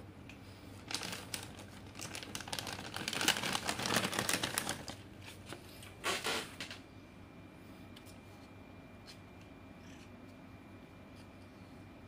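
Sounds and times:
plastic packaging crinkling: 0:00.8 - 0:05.5.

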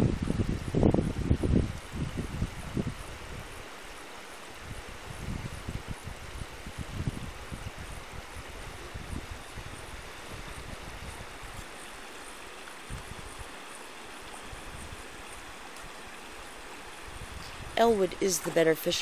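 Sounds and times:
wind buffeting microphone: 0:00.0 - 0:03.8, 0:04.6 - 0:11.7, 0:12.8 - 0:13.6, 0:14.4 - 0:16.1, 0:17.0 - 0:18.7.

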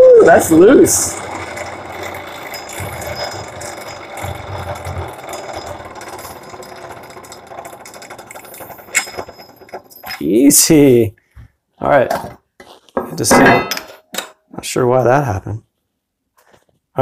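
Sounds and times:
scissor sharpener rattling: 0:00.5 - 0:10.3.

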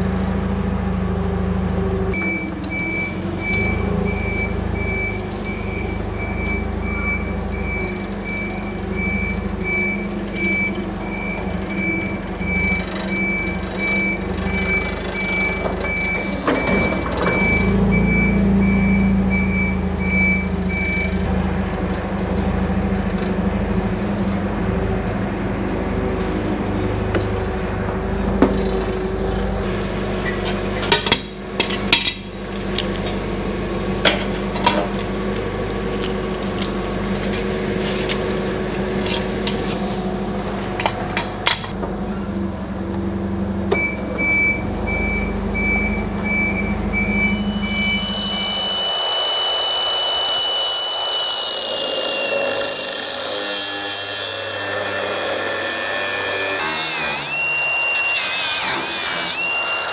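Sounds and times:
low machine hum: 0:00.0 - 0:59.9
angle grinder grinding steel: 0:47.6 - 0:59.9.

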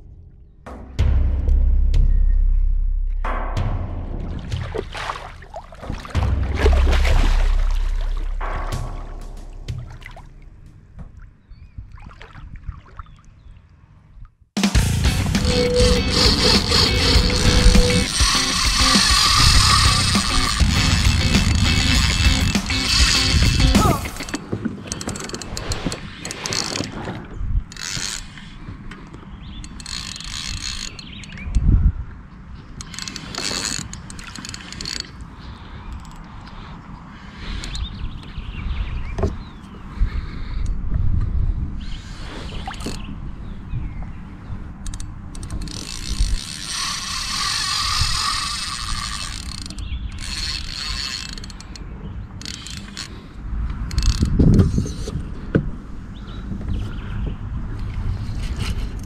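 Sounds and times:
heavy low knock: 0:00.0 - 0:11.3
low rumble: 0:00.0 - 0:11.9
fishing reel whirring: 0:15.3 - 0:26.9, 0:27.7 - 0:28.4, 0:29.8 - 0:31.4, 0:32.8 - 0:35.2, 0:44.9 - 0:51.8, 0:52.4 - 0:53.2.

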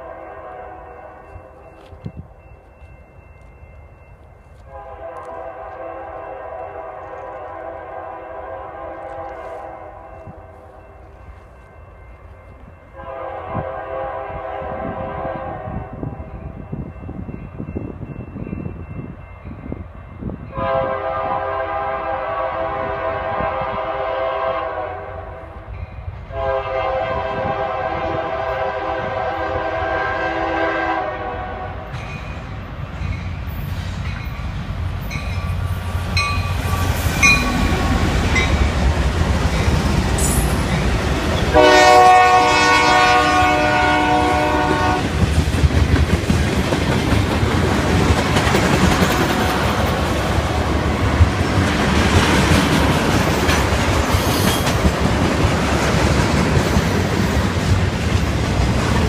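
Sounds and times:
locomotive air horn blasts: 0:00.0 - 0:01.2, 0:04.6 - 0:10.4, 0:12.9 - 0:16.2, 0:20.5 - 0:25.4, 0:26.3 - 0:31.9, 0:41.5 - 0:45.1.

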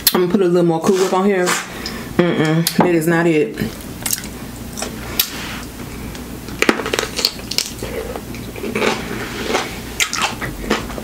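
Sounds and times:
pickle crunching when chewed: 0:06.5 - 0:11.0.

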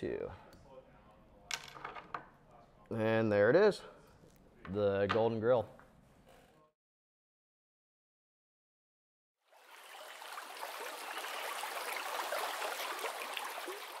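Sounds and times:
stream water rushing: 0:09.6 - 0:14.0.

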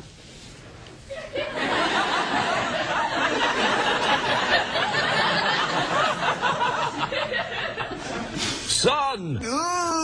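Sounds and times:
audience laughing: 0:01.1 - 0:08.6.

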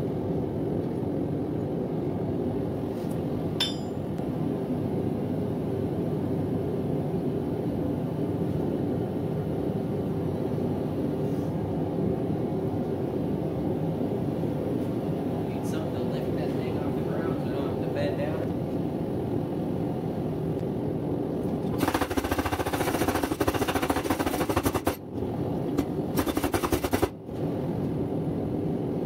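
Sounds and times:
ringing metal clink: 0:03.6 - 0:04.2.

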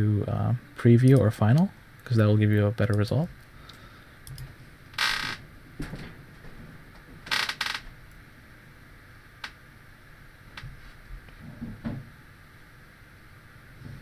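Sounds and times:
keyboard and mouse clicks: 0:04.2 - 0:04.5.

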